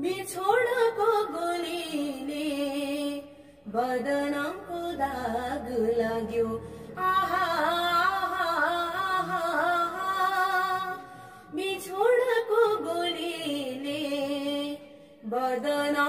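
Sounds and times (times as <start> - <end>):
woman singing unaccompanied: 0.0 - 16.0.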